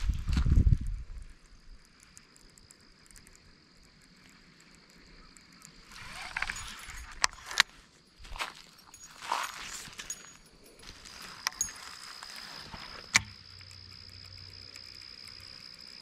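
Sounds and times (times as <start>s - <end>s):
sharp reel clicks: 0.8s - 7.7s, 11.2s - 16.0s
fishing reel cranked clicking: 1.8s - 7.7s, 11.2s - 16.0s.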